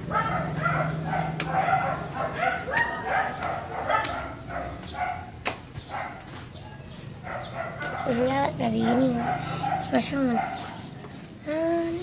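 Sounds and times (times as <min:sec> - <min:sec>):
small dog yapping: 0:00.1 - 0:06.2.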